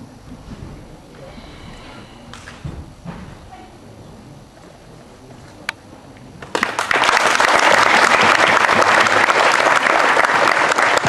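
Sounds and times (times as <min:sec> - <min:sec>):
audience applause: 0:06.4 - 0:11.0.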